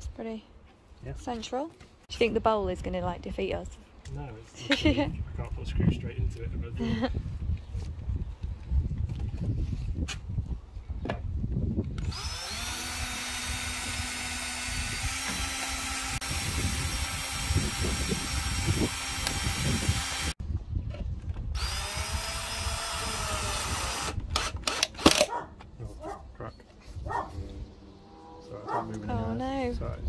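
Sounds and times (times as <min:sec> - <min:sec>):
cordless drill whining: 0:12.0 - 0:20.4, 0:21.5 - 0:25.3.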